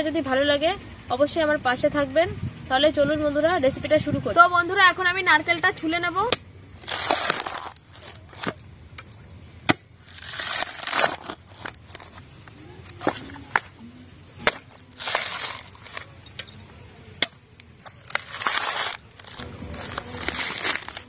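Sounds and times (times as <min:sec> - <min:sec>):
husk cracking and clicking: 0:06.6 - 0:09.2, 0:10.0 - 0:13.8, 0:17.2 - 0:21.0
coconut husk tearing: 0:06.6 - 0:13.7, 0:14.4 - 0:16.2, 0:17.2 - 0:21.0.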